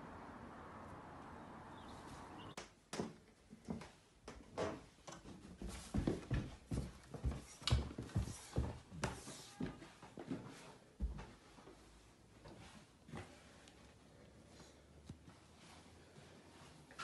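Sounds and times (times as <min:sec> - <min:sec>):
footsteps on carpet: 0:05.4 - 0:13.5.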